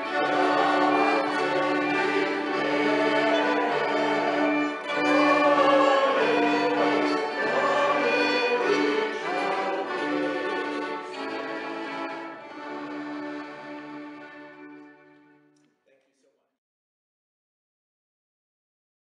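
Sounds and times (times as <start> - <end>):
accordion chords and bass notes: 0.0 - 15.0
violin melody: 0.0 - 15.6.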